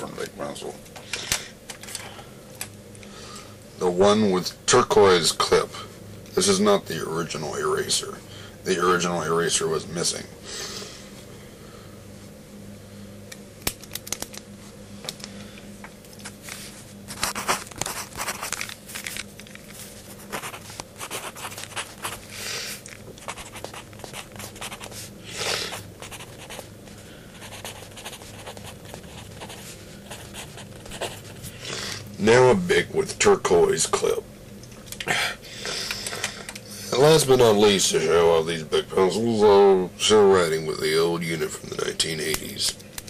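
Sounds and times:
steady low hum: 0.0s - 43.0s
pencil scratching on paper: 17.2s - 18.5s, 20.2s - 22.2s, 23.2s - 25.1s, 25.7s - 26.7s, 27.4s - 31.6s.

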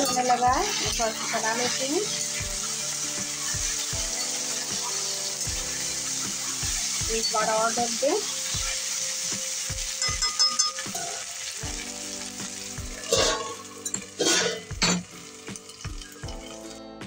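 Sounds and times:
spatula scraping a pan: 0.0s - 16.8s
food sizzling in oil: 0.0s - 17.0s
metal lid clanking: 13.0s - 15.1s.

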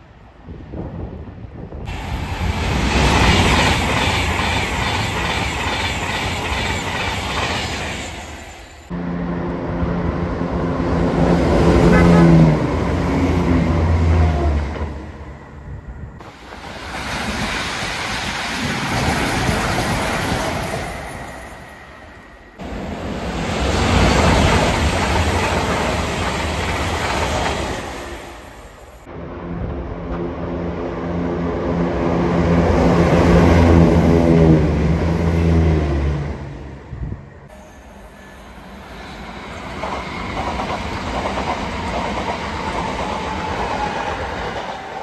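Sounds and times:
train rumbling and rattling: 0.0s - 45.0s
train engine note: 1.9s - 16.3s.

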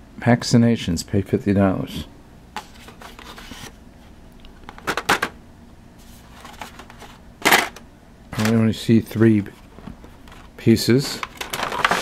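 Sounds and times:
board game box rustling: 2.6s - 3.8s, 6.0s - 7.8s, 8.4s - 12.0s.

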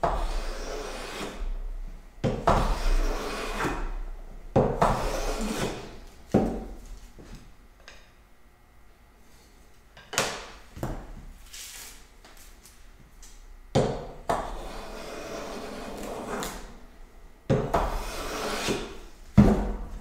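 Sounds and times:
hand plane shaving wood: 0.2s - 1.4s, 2.7s - 3.7s, 5.0s - 5.9s, 14.6s - 16.5s, 17.9s - 18.9s.

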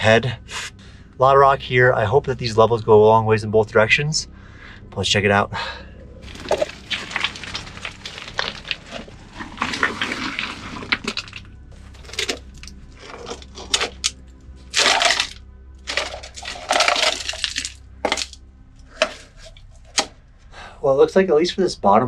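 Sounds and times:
rock and rubble crunching: 6.1s - 20.2s
metal can scraping on stones: 6.2s - 20.1s.

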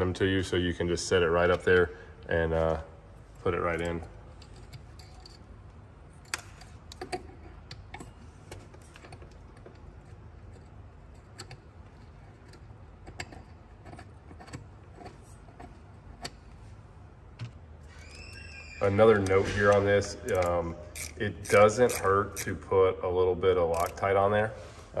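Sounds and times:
low steady hum: 0.0s - 25.0s
metal and plastic parts clicking: 19.2s - 22.6s, 23.7s - 24.0s.

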